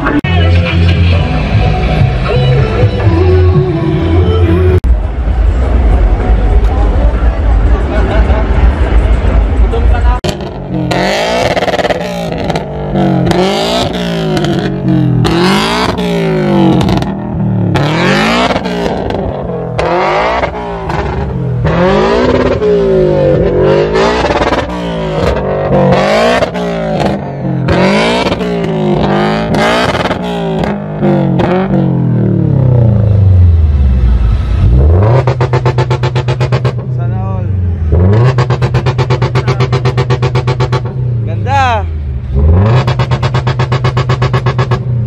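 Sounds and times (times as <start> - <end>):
car engine revving: 0.0 - 45.0.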